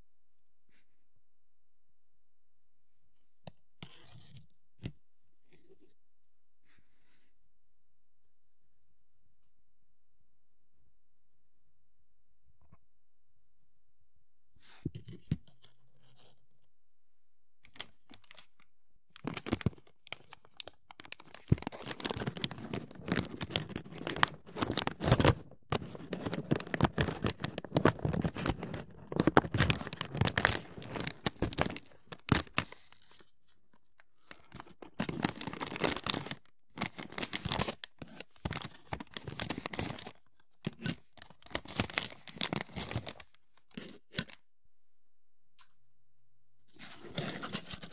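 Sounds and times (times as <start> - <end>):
hands handling plastic parts: 17.7 - 44.4.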